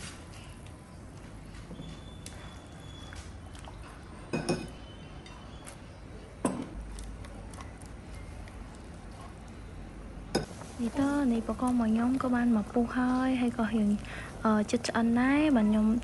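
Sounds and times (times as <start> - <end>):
kitchenware knocks with ring: 4.3 - 4.8.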